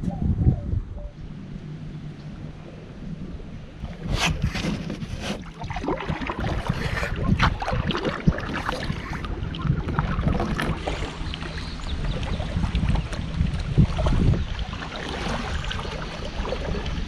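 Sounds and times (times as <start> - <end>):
wind rumbling on microphone: 0.0 - 17.0
paddle strokes splashing: 3.8 - 17.0.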